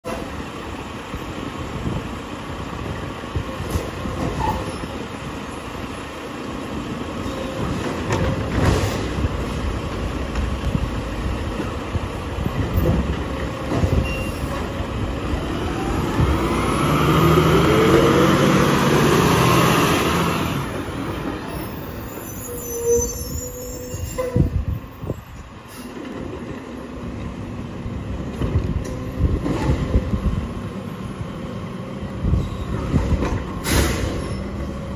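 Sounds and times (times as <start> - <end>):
diesel engine running and revving: 15.3 - 20.8.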